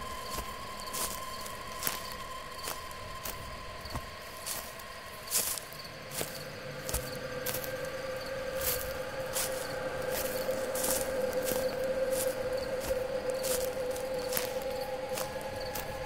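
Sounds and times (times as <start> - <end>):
eerie drone tone: 0.0 - 16.0
soft crackling rustles: 0.0 - 16.0.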